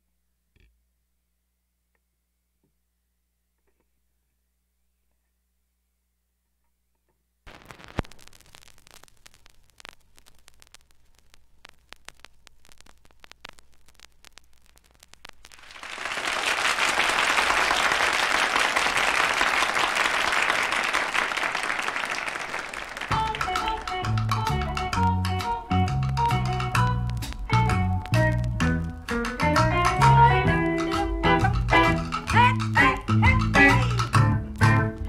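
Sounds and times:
vinyl record crackle: 7.5s - 35.0s
audience applauding: 15.5s - 24.8s
music with bass line: 23.1s - 35.0s.

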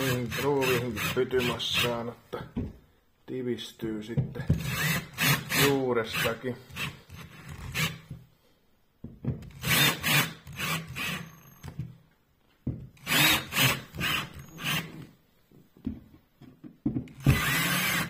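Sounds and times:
cordless drill driving screws: 0.0s - 1.9s, 4.6s - 8.1s, 9.4s - 11.8s, 13.0s - 15.2s, 17.1s - 18.0s.

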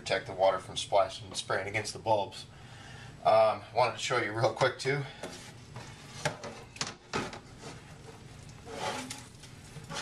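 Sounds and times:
knocks and scrapes on steel sink: 5.2s - 10.0s.

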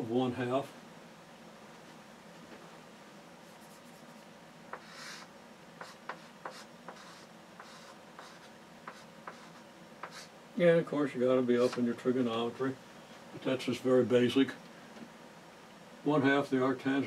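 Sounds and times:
chalk scratching on blackboard: 3.4s - 10.3s
chalk tapping on blackboard: 3.5s - 10.3s.

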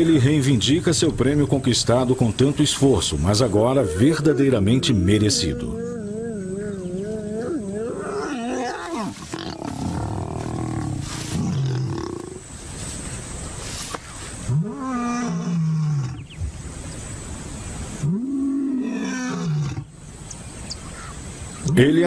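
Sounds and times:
lion roaring: 3.6s - 12.4s
lions snarling and growling: 3.7s - 12.5s.

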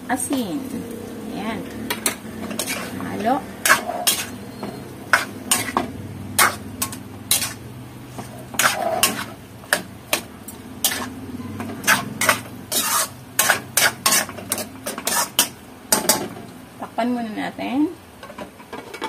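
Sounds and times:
steady low hum: 0.0s - 13.5s
metal spatula scraping a wok: 0.3s - 16.2s.

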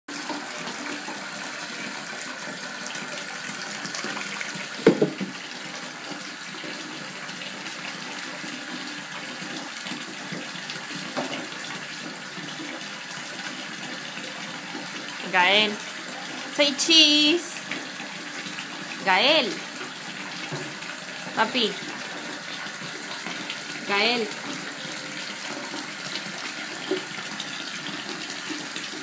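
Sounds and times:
water running into bathtub: 0.1s - 29.0s.

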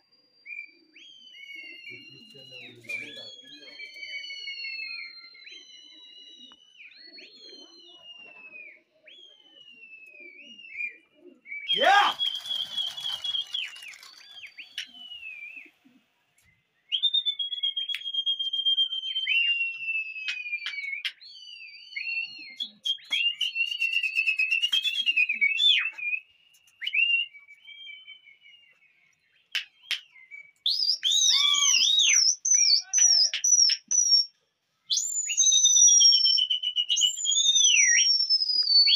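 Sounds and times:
man whistling shrill notes: 11.7s - 14.2s, 30.7s - 34.3s.

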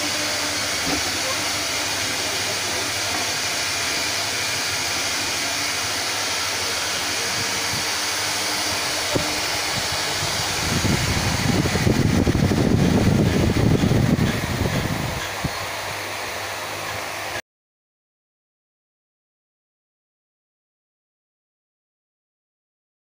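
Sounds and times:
rushing air hiss: 0.0s - 17.4s.

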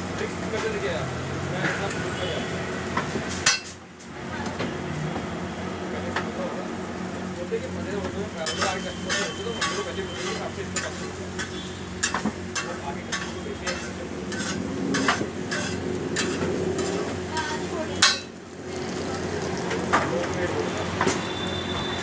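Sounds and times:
steady sizzle: 0.0s - 22.0s
metal spatula clicking on griddle: 8.4s - 18.3s.

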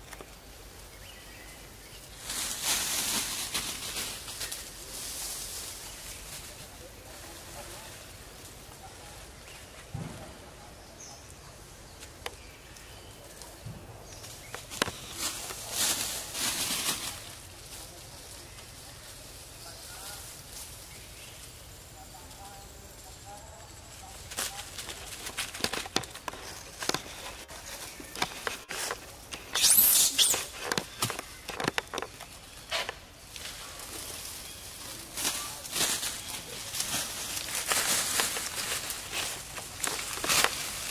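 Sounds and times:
steady background hiss: 0.0s - 40.9s
footsteps on dry leaves: 1.9s - 8.3s, 14.1s - 21.4s, 24.0s - 40.9s
high-pitched squeal: 29.5s - 30.6s.

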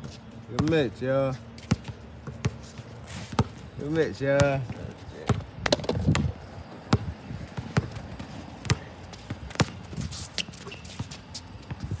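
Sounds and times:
basketball bouncing on hard court: 0.0s - 0.8s, 1.6s - 2.6s, 3.3s - 3.6s, 4.4s - 9.9s.

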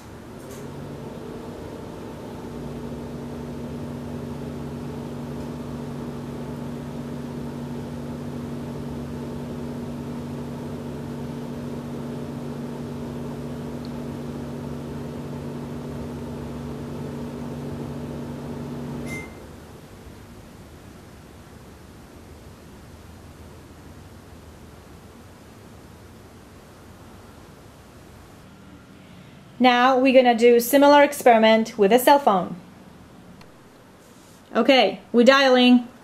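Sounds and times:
microwave oven humming: 0.0s - 29.0s
short beep: 19.0s - 19.4s.

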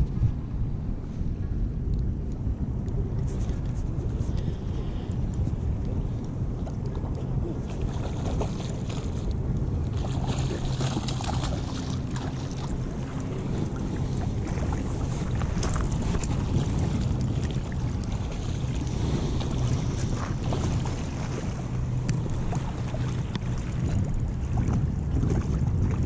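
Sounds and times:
wind buffeting microphone: 0.0s - 26.0s
lake water lapping: 3.0s - 26.0s.

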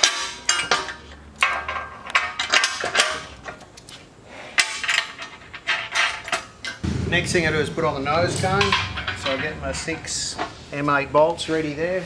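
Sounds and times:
metal bolts and nuts clinking: 0.0s - 4.0s, 4.6s - 6.8s.

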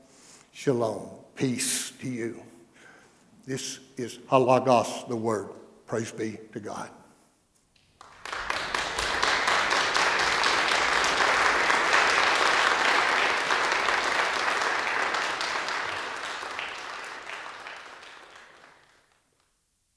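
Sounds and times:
congregation applauding: 7.8s - 19.6s.

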